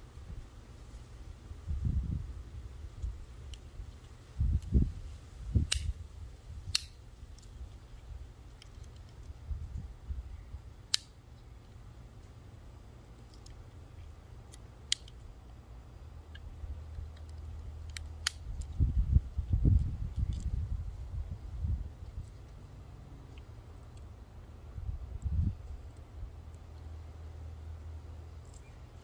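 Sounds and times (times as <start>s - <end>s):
pocket knife tools clicking: 6.7s - 7.6s, 14.5s - 15.2s, 16.3s - 18.8s.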